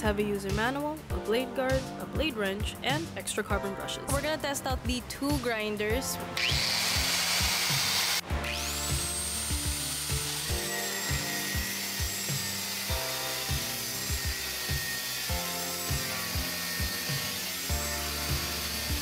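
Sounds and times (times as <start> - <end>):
background music with beat: 0.0 - 19.0
angle grinder cutting steel: 6.4 - 19.0.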